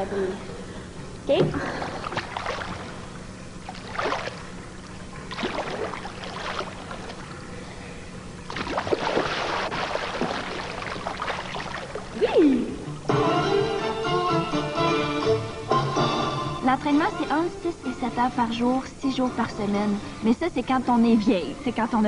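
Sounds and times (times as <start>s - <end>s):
pool water splashing: 1.6s - 7.6s, 8.4s - 13.1s.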